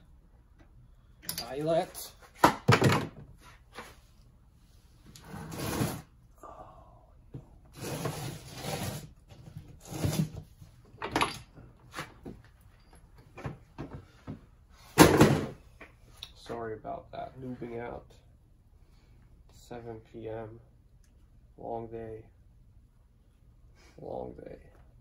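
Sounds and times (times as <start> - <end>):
parts rustling and scraping: 3.1 - 6.2, 7.7 - 15.5.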